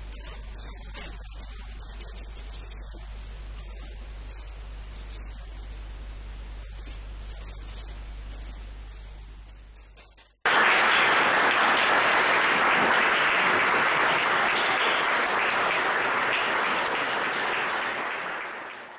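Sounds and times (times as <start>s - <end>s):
audience applauding: 10.4s - 18.9s.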